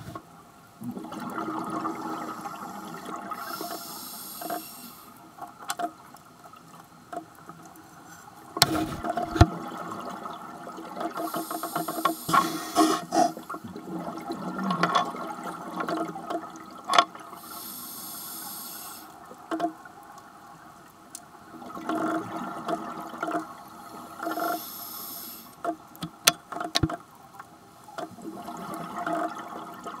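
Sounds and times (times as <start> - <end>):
exhaled bubbles rushing: 0.8 - 3.4, 13.4 - 16.3
regulator hissing inhalation: 3.4 - 5.1, 11.3 - 13.4, 17.4 - 19.1, 24.4 - 25.5.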